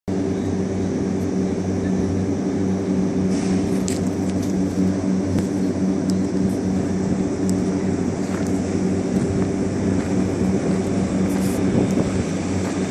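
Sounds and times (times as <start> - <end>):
sprayer engine running: 0.1 - 12.9.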